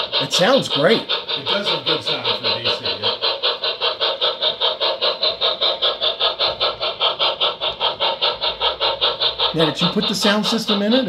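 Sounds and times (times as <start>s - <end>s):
model steam locomotive chuffing: 0.0s - 11.0s.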